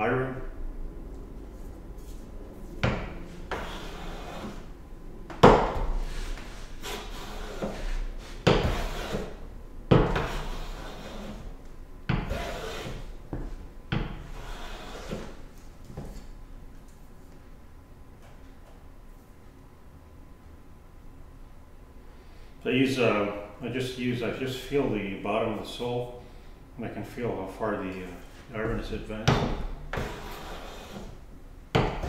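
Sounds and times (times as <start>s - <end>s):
hand plane scraping wood: 3.5s - 4.7s, 6.1s - 9.4s, 10.1s - 11.5s, 12.2s - 13.1s, 14.2s - 15.4s, 29.9s - 31.2s.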